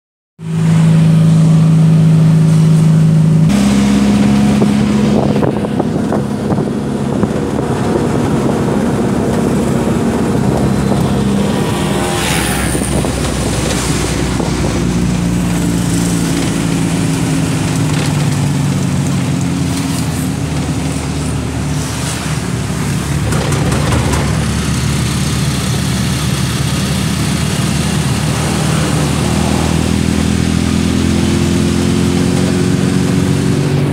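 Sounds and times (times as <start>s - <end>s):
car engine hum: 0.4s - 33.9s
tyre and wind noise: 3.4s - 24.8s.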